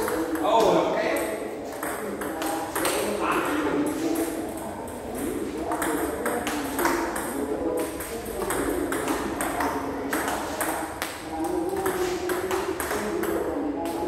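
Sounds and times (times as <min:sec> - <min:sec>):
ball bouncing on table: 0:00.0 - 0:14.0
ping pong ball hitting rackets: 0:00.0 - 0:14.0.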